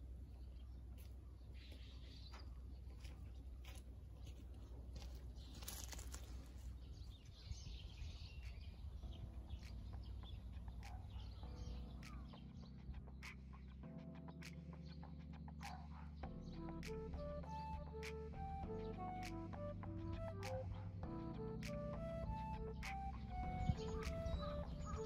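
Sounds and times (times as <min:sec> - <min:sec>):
small birds chirping: 0:00.0 - 0:25.0
soft music with held chords: 0:08.2 - 0:25.0.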